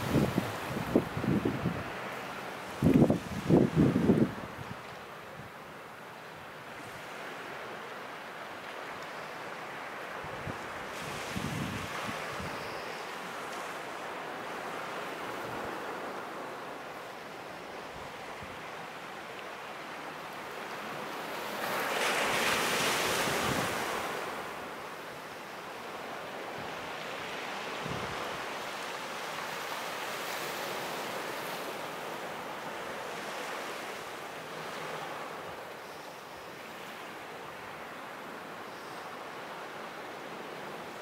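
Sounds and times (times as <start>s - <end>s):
wind noise on microphone: 0.0s - 2.0s, 2.8s - 4.8s, 10.2s - 12.8s, 27.8s - 28.2s
sea waves washing ashore: 0.0s - 41.0s.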